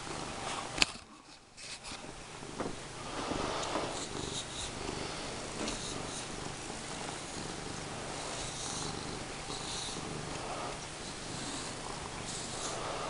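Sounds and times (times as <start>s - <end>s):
cat purring: 0.0s - 0.8s, 1.9s - 13.0s
brush strokes through fur: 3.0s - 13.0s.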